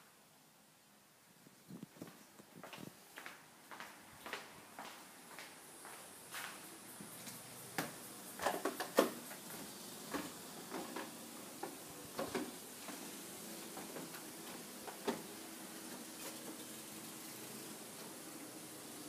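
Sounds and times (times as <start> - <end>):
footsteps on timber deck: 1.8 - 8.5.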